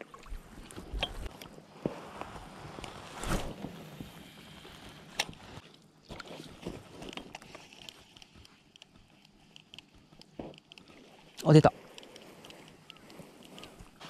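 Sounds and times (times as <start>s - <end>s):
fishing reel clicks and rustles: 4.4s - 14.0s.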